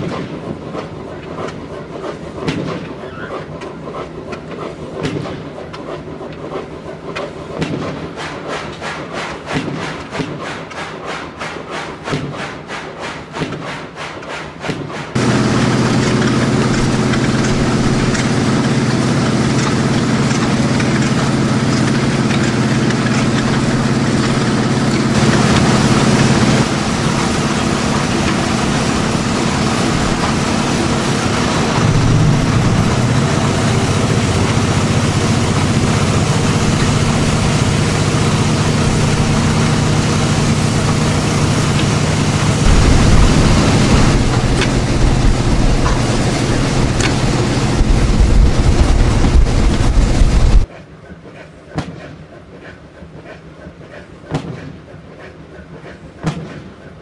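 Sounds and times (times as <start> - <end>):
engine exhaust puffing: 15.2 - 50.7
steady hum with hiss: 15.2 - 50.7.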